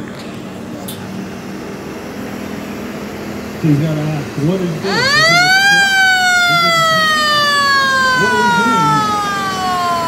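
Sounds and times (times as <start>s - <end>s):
motor-driven siren wailing: 4.4s - 10.0s.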